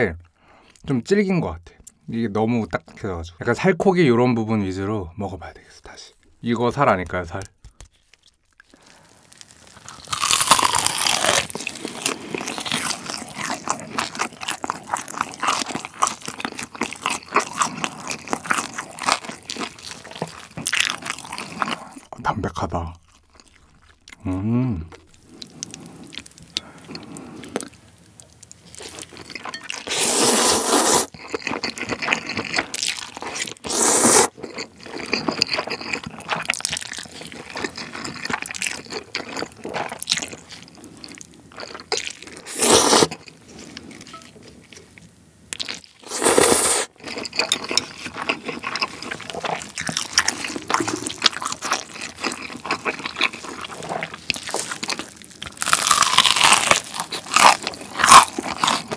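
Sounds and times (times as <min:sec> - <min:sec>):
wet chewing: 0:07.0 - 0:22.1, 0:24.9 - 0:58.9
loud noodle slurps: 0:29.8 - 0:31.2, 0:33.4 - 0:34.4, 0:42.4 - 0:43.2, 0:46.0 - 0:47.0.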